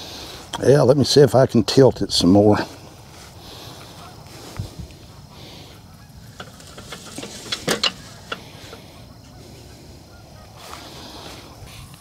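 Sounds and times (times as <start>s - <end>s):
geese honking: 3.4s - 12.0s
live trap knocking and clicking: 6.3s - 8.8s.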